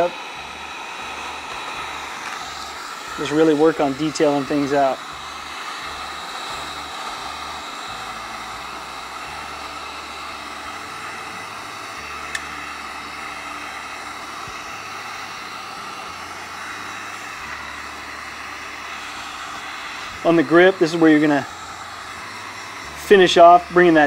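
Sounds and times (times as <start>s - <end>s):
heat gun fan blowing: 0.0s - 24.0s.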